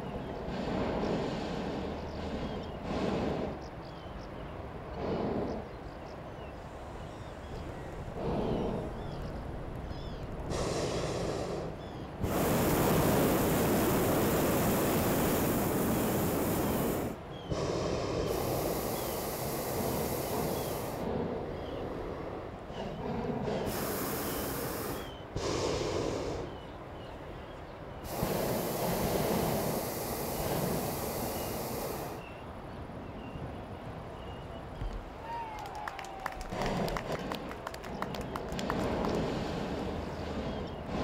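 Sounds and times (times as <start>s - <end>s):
propane burner blasts: 7.0s - 26.7s, 27.9s - 32.4s.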